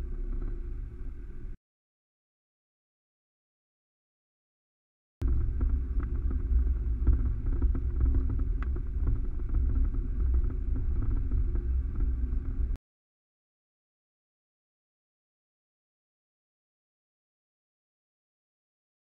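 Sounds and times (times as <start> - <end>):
vehicle driving on gravel: 0.0 - 1.6, 5.2 - 12.8.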